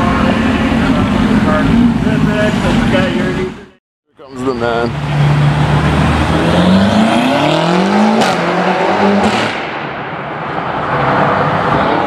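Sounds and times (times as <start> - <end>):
car engine accelerating hard: 5.1 - 9.6.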